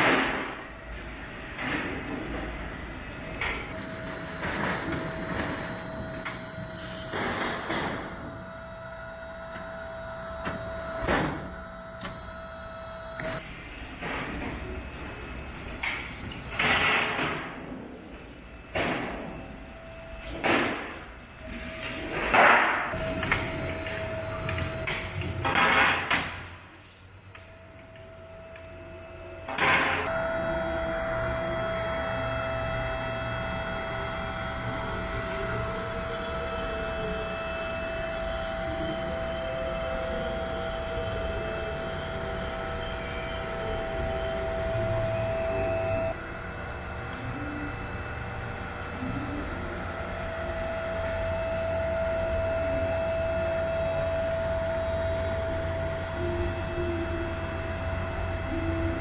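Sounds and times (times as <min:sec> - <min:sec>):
faint machine whine: 0:00.0 - 0:16.9, 0:17.8 - 0:59.0
harsh noisy machine surges: 0:30.1 - 0:59.0.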